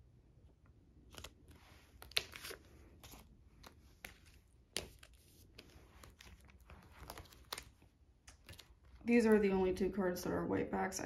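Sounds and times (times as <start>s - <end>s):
plastic pages rustling: 1.0s - 9.7s.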